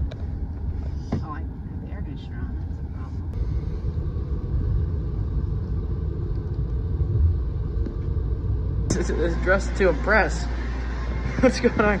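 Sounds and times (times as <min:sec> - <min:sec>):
road and engine rumble in car: 0:00.0 - 0:09.0.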